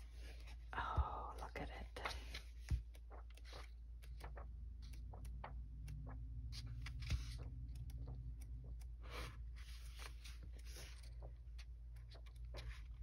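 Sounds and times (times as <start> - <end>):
paper rustling: 6.6 - 7.5, 9.2 - 13.0.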